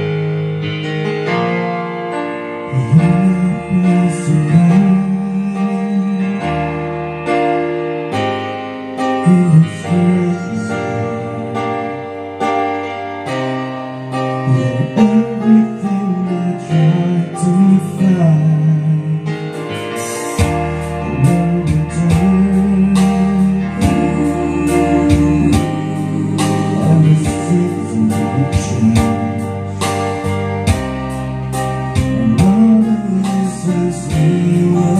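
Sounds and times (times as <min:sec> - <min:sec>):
guitar and keyboard accompaniment: 0:00.0 - 0:34.9
sung melody line: 0:00.0 - 0:34.9
deep bass: 0:02.6 - 0:08.0, 0:14.2 - 0:34.9.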